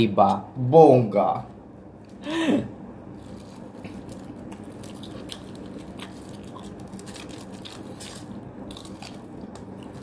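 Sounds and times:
faint low hum: 0:00.0 - 0:10.0
chewing crunchy food: 0:03.1 - 0:10.0.

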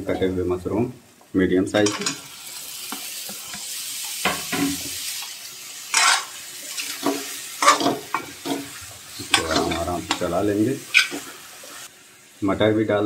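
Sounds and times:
spices sizzling in a metal pan: 0:00.0 - 0:13.0
metal spatula scraping a pan: 0:01.8 - 0:02.2, 0:05.9 - 0:11.4.

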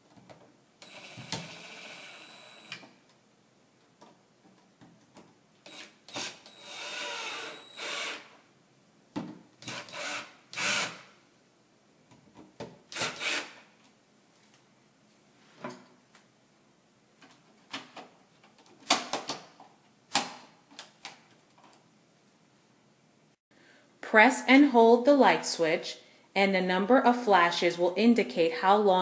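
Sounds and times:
cordless drill motor whine: 0:00.8 - 0:02.8, 0:05.7 - 0:08.3.

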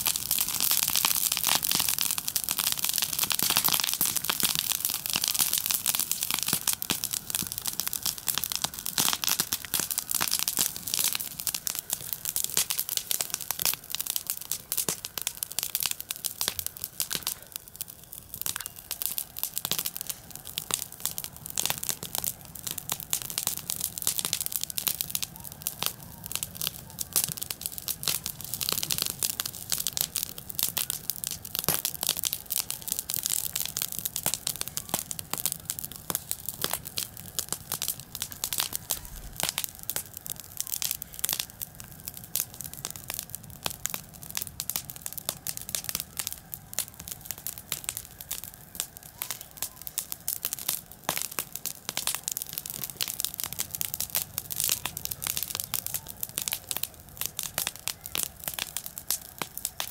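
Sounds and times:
grass burning crackling: 0:00.0 - 0:59.9.

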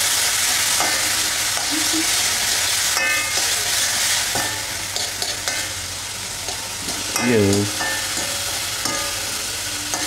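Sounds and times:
food sizzling in a wok: 0:00.0 - 0:10.0
metal ladle scraping a pan: 0:00.1 - 0:05.8, 0:06.4 - 0:10.0.

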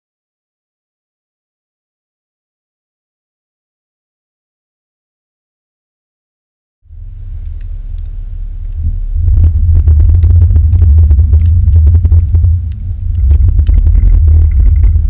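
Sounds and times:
pickup truck engine rumble: 0:06.9 - 0:15.0.

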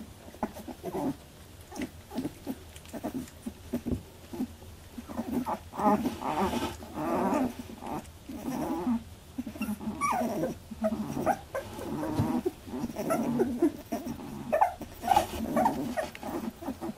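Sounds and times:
puppies whining and squeaking: 0:00.3 - 0:16.9
puppy squealing: 0:09.4 - 0:16.9.

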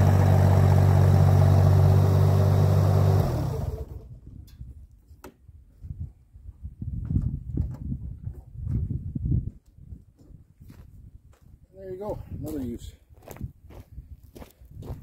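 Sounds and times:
diesel engine running: 0:00.0 - 0:04.2.

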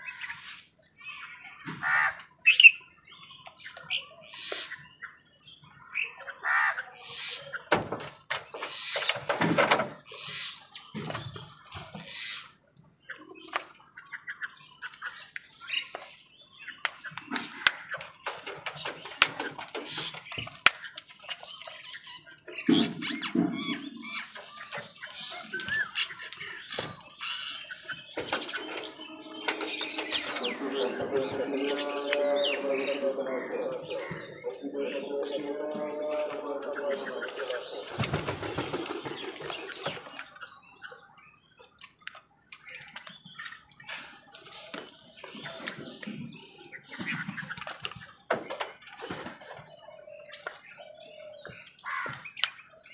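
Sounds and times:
crows cawing: 0:01.7 - 0:02.4, 0:06.4 - 0:07.6, 0:23.1 - 0:38.4, 0:51.3 - 0:52.4
beaks pecking at food: 0:06.2 - 0:12.5, 0:13.1 - 0:52.9.

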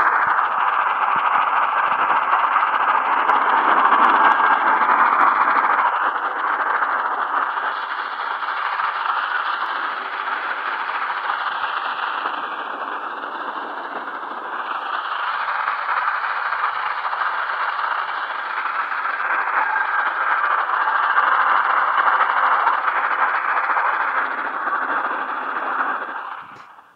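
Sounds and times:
faint wavering radio whistles: 0:00.0 - 0:26.9
radio static hiss: 0:00.0 - 0:26.9.

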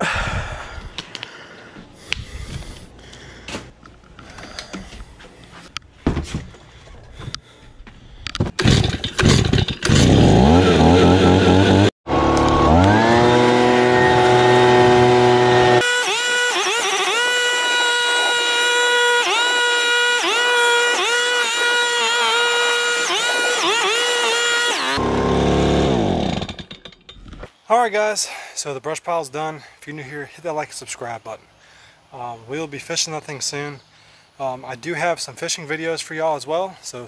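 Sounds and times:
leaf blower revving: 0:08.6 - 0:26.6.

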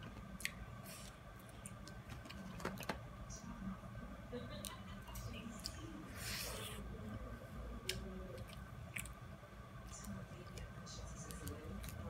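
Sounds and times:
chewing: 0:00.3 - 0:02.9, 0:07.8 - 0:09.2, 0:09.8 - 0:12.0.

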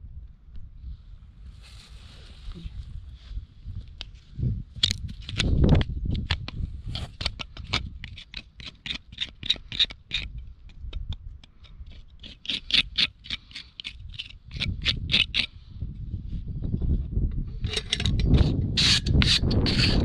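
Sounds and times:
knife scraping horse hoof: 0:04.8 - 0:15.6, 0:17.5 - 0:20.0.

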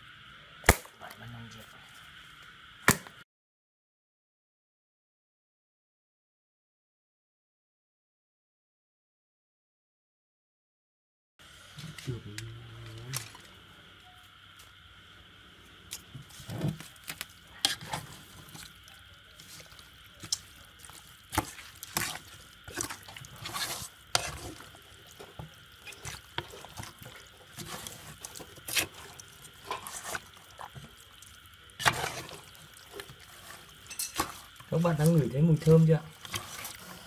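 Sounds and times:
wet squelches: 0:15.8 - 0:37.0.

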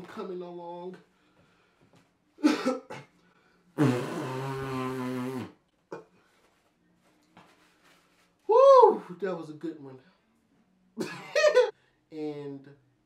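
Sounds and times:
man blowing nose: 0:03.8 - 0:05.6.

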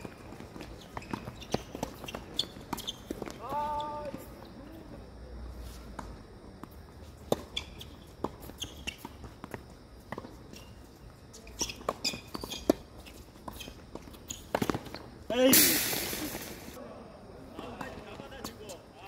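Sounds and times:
footsteps on court: 0:00.0 - 0:04.6, 0:05.6 - 0:15.2
tennis ball bouncing: 0:05.9 - 0:10.3.

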